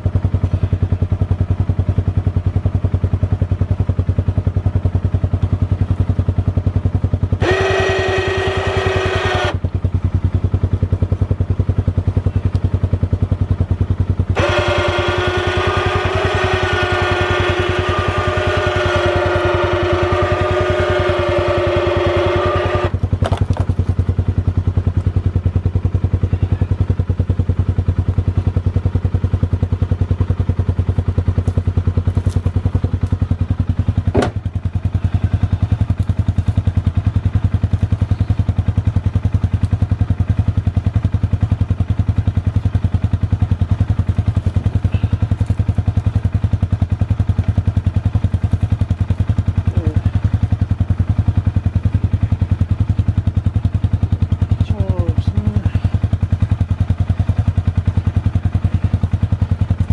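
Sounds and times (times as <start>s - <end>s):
vehicle engine idling: 0.0s - 59.9s
electric winch whining: 7.4s - 9.6s, 14.3s - 23.0s
sharp thump: 34.1s - 34.5s.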